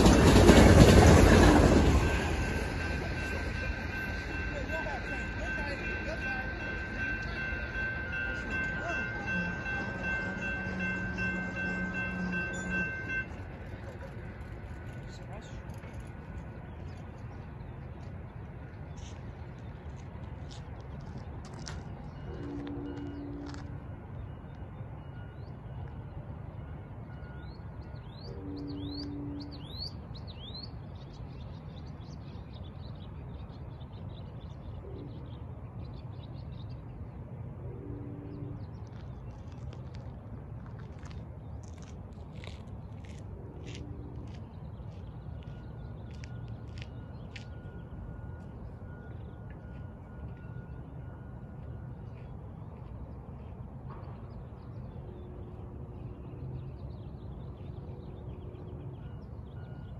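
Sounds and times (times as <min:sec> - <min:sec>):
railroad crossing bells ringing: 0:00.0 - 0:59.9
distant train horn: 0:00.2 - 0:14.0, 0:22.2 - 0:24.0, 0:28.0 - 0:30.0, 0:37.6 - 0:38.8, 0:43.2 - 0:44.6.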